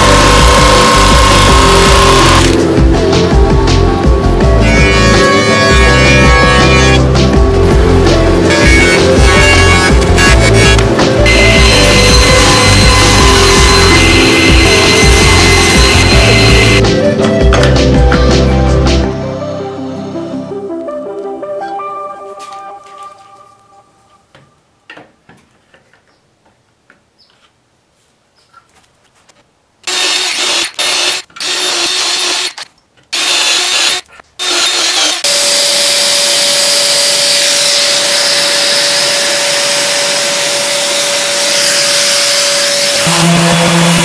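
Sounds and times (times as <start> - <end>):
cordless drill boring wood: 0.0 - 2.6, 8.5 - 16.8, 29.8 - 44.0
random orbital sander running: 0.0 - 2.9, 7.7 - 16.8, 29.9 - 32.6, 33.2 - 44.0.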